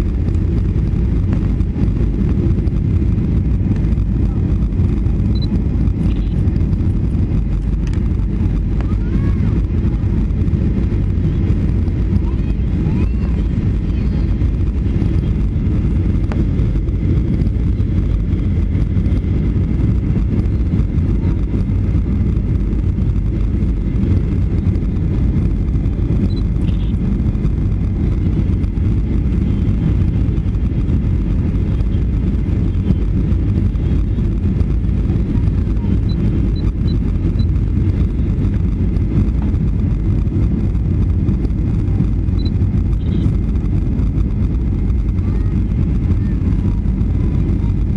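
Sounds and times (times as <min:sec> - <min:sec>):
airplane engine and airflow rumble: 0:00.0 - 0:47.9.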